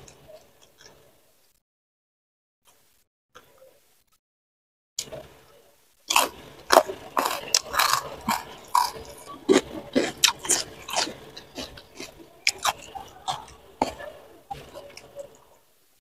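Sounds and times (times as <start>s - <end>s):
person chewing food: 6.1s - 15.6s.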